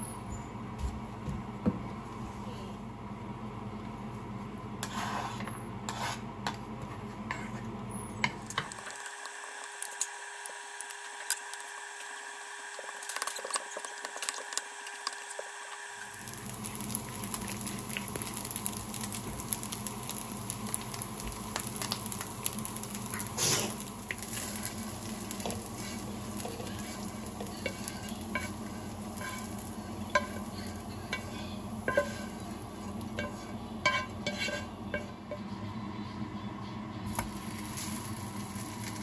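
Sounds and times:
wooden spatula scraping a pan: 0:04.8 - 0:06.2, 0:07.3 - 0:07.6, 0:23.4 - 0:35.1
rice scraped into a bowl: 0:04.8 - 0:06.3
rice sizzling in a frying pan: 0:08.5 - 0:35.5, 0:37.1 - 0:39.0.

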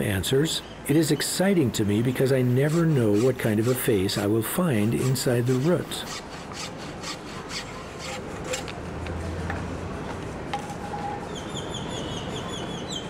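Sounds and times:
hacksaw cutting wood: 0:02.2 - 0:08.7
bird chirping: 0:11.3 - 0:13.0.

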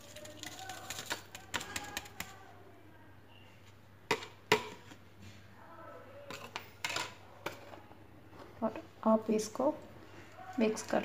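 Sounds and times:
plastic tray and spoon tapping: 0:00.9 - 0:02.4.

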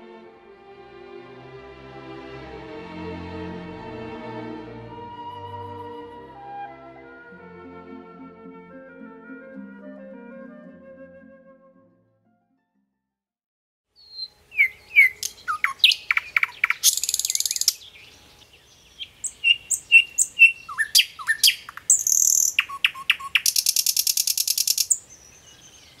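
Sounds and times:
nightingale singing: 0:14.0 - 0:26.0.

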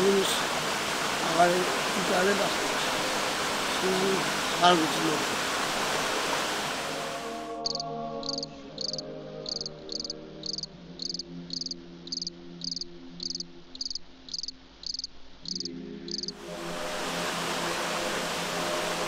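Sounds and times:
crickets chirping: 0:07.6 - 0:16.4.

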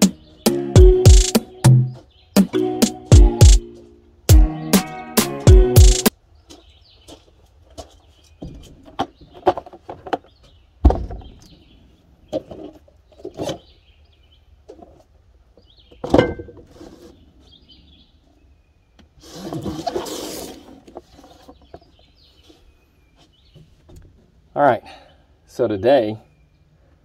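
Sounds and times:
background music: 0:00.0 - 0:06.1
birds chirping: 0:00.0 - 0:14.9, 0:15.5 - 0:16.4, 0:17.0 - 0:19.2, 0:21.1 - 0:27.0
cardboard boxes on wooden table: 0:19.1 - 0:23.5.

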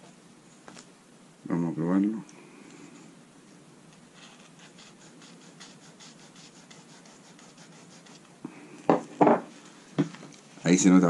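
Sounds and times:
line tip scratching on paper: 0:04.2 - 0:08.3.

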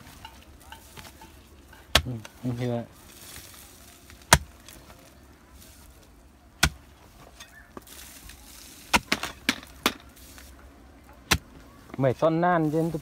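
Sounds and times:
hoe striking earth and stone: 0:00.0 - 0:02.4, 0:04.2 - 0:04.6, 0:06.6 - 0:08.0, 0:08.8 - 0:10.4, 0:11.2 - 0:11.5.

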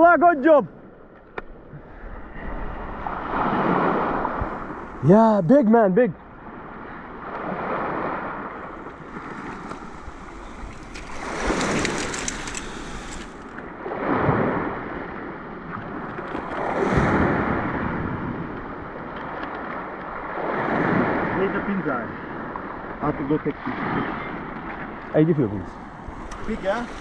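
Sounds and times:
waves washing over rocky shore: 0:06.4 - 0:19.0, 0:25.8 - 0:27.0.

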